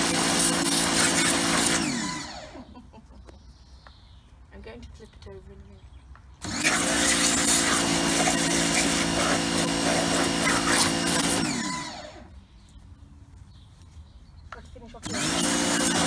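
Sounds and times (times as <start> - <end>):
water jet spraying plastic: 0.0 - 2.2, 6.4 - 12.2, 15.0 - 16.0
pressure washer motor running: 0.0 - 2.6, 6.4 - 12.3, 15.0 - 16.0.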